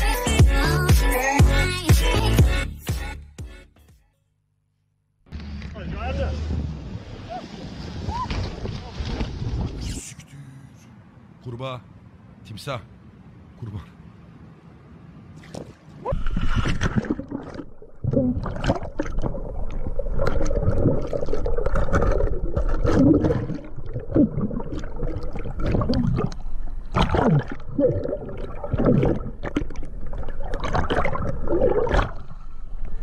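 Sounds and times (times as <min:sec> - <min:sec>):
water splashing around a boat: 0:15.3 - 0:33.0.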